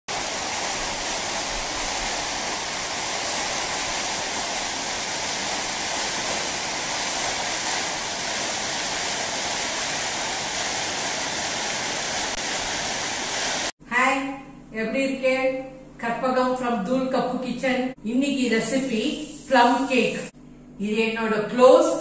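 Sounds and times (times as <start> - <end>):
waterfall rushing: 0.1 - 13.7.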